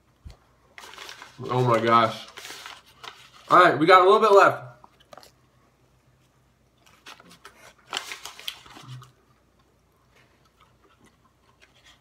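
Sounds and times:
gum pouch rustling: 6.7s - 9.6s.

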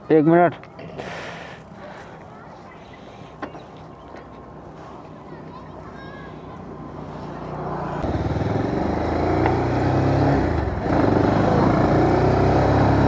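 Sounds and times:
motorcycle engine accelerating: 6.8s - 13.0s.

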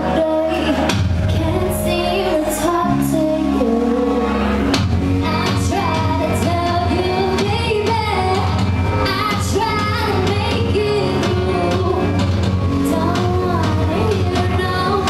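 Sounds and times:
backing track with heavy bass: 0.0s - 15.0s
woman singing into microphone: 0.0s - 15.0s.

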